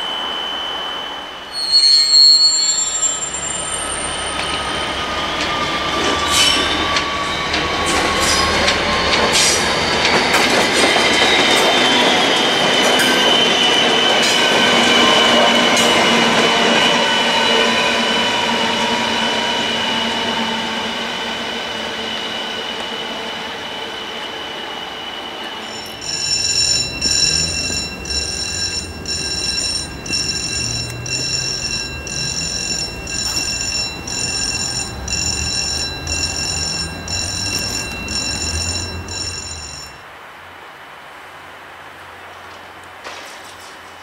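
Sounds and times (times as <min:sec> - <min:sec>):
diesel locomotive engine: 0:00.0 - 0:40.1
electronic warning alarm pulses: 0:25.7 - 0:40.0.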